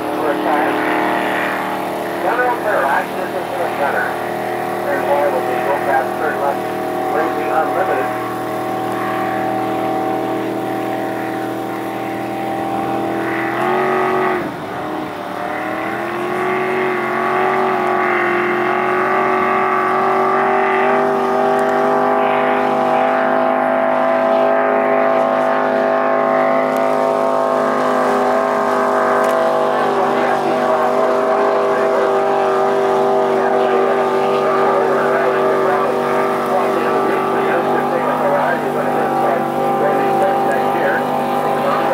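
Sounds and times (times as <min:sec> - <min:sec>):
racing boat engine at high revs: 0:00.0 - 0:41.9.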